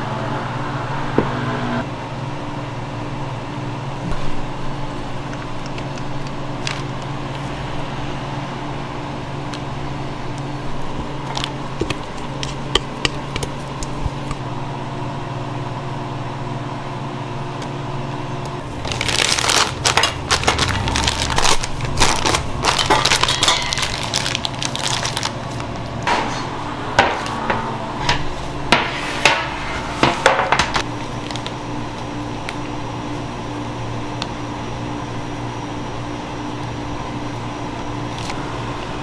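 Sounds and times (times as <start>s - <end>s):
machine hum: 0.0s - 39.0s
plastic piping bag crinkling: 18.7s - 25.8s, 30.9s - 32.7s.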